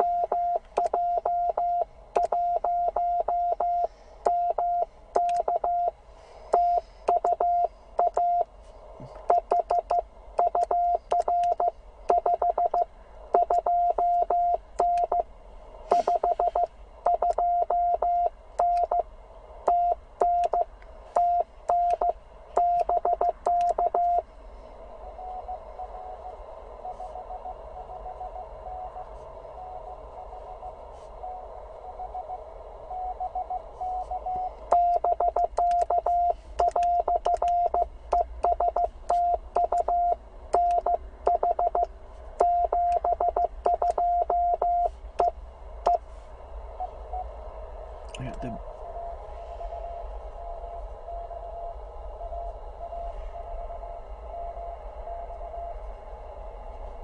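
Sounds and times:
morse code tone: 0.0s - 5.9s, 6.6s - 8.5s, 9.3s - 12.8s, 13.4s - 15.2s, 15.9s - 19.0s, 21.2s - 24.2s, 33.0s - 45.3s
faint morse signal: 0.0s - 57.0s
radio band hiss: 15.8s - 16.6s.

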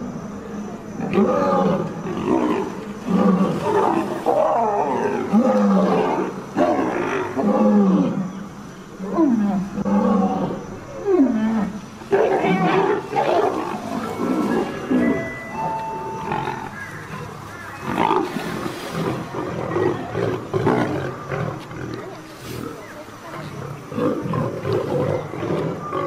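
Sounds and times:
deep rough animal calls: 12.4s - 26.0s.

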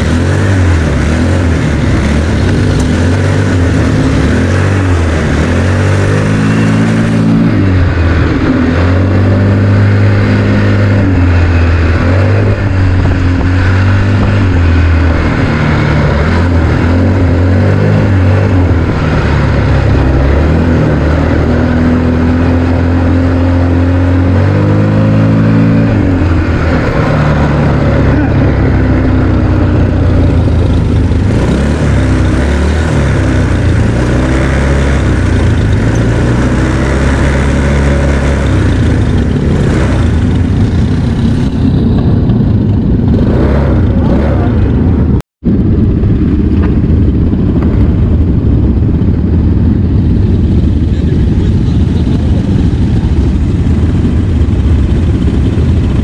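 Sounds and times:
atv engine revving: 0.0s - 56.0s.

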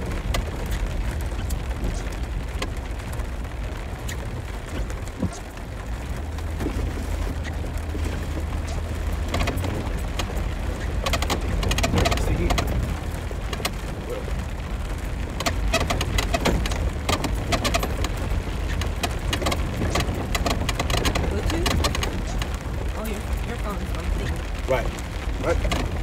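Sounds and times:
sharp clicks and rattles: 0.0s - 26.0s
vehicle engine and tyres rumbling: 0.0s - 26.0s.

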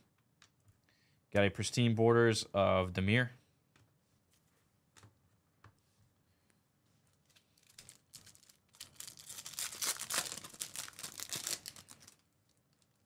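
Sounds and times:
foil wrapper crinkling: 7.2s - 13.0s
hands tearing wrapper open: 7.6s - 13.0s.

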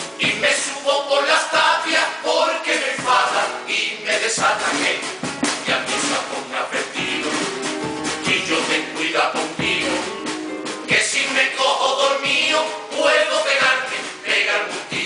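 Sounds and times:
classical guitar: 0.0s - 0.4s, 4.9s - 11.0s
drum beats: 0.0s - 15.0s
male chorus singing: 0.2s - 15.0s.

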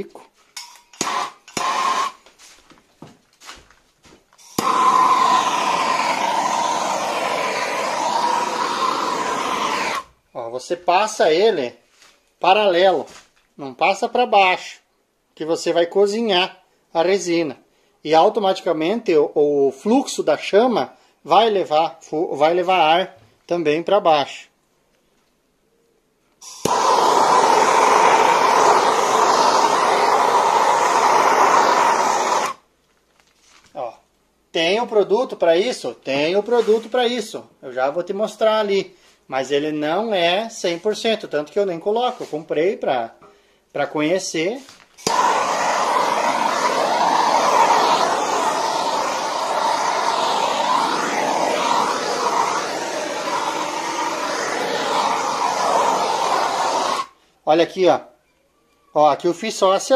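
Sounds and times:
gas torch ignition click: 0.6s - 2.2s, 4.4s - 10.0s, 26.4s - 32.6s, 45.0s - 52.6s
gas torch flame hissing: 1.0s - 2.2s, 4.4s - 10.2s, 26.4s - 32.6s, 45.0s - 57.2s.

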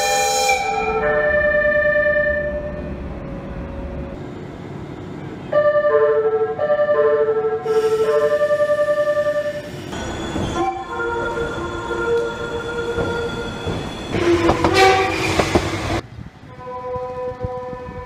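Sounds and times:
train horn: 0.0s - 2.8s, 5.5s - 9.6s, 10.6s - 13.4s, 14.2s - 18.0s
passing train rushing: 0.0s - 18.0s.

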